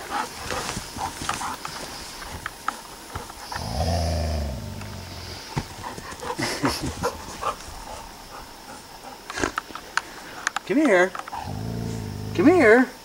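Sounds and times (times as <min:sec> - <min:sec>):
dog growling: 0:03.4 - 0:05.5, 0:11.3 - 0:12.8.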